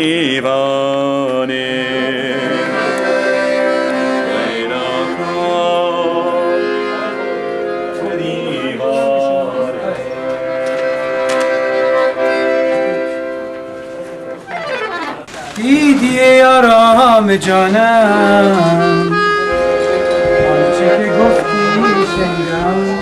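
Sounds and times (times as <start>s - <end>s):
accordion playing held chords: 1.2s - 23.0s
person singing: 4.1s - 10.1s, 15.6s - 23.0s.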